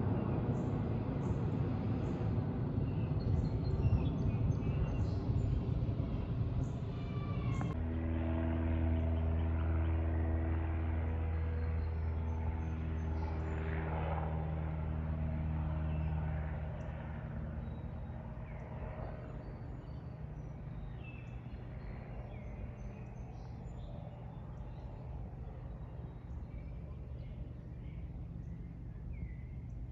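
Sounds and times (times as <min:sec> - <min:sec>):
aircraft engine drone: 0:00.0 - 0:29.9
birds chirping: 0:02.0 - 0:07.8, 0:15.4 - 0:29.9.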